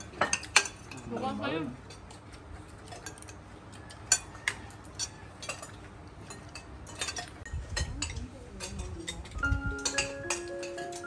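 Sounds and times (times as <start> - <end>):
cutlery clinking on ceramic dishes: 0.0 - 11.0
marimba-like music: 9.4 - 11.0.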